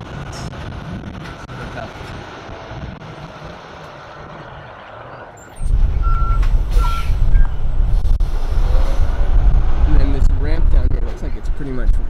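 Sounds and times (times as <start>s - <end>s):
truck reversing alarm beeps: 4.9s - 7.8s
loud low rumble: 5.6s - 12.0s.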